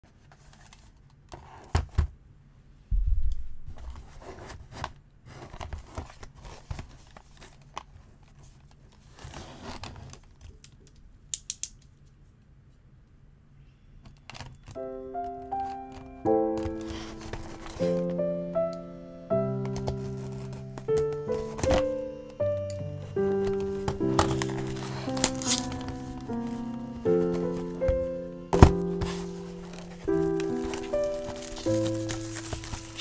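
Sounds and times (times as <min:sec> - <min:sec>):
heavy thump: 0:02.9 - 0:04.1
plastic wrap crinkling: 0:15.2 - 0:33.0
utility knife scraping plastic wrap: 0:23.3 - 0:27.8, 0:28.6 - 0:33.0
cardboard box handled with knocks: 0:23.4 - 0:26.0, 0:27.2 - 0:33.0.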